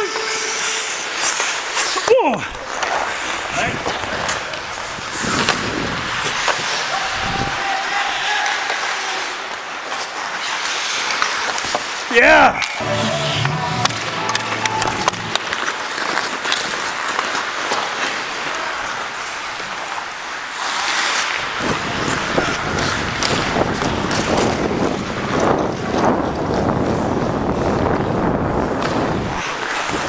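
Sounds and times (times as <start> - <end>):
skates scraping ice: 0.0 - 30.0
hockey sticks clacking on ice: 0.1 - 7.1, 7.8 - 12.8, 13.8 - 27.9, 28.6 - 30.0
wind buffeting microphone: 21.5 - 29.4.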